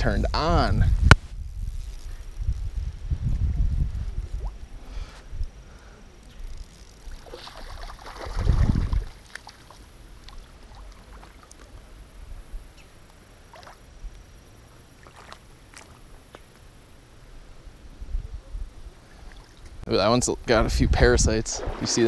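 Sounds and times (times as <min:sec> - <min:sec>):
water sloshing and splashing: 0:07.2 - 0:11.9, 0:13.5 - 0:13.9, 0:15.0 - 0:16.5.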